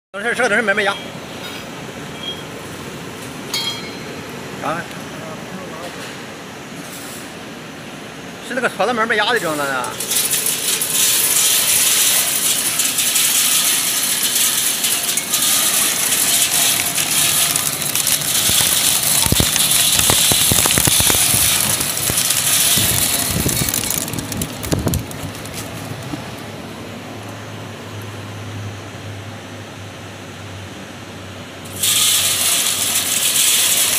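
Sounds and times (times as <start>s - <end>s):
seed shelling machine clattering: 9.4s - 26.4s, 31.7s - 33.9s.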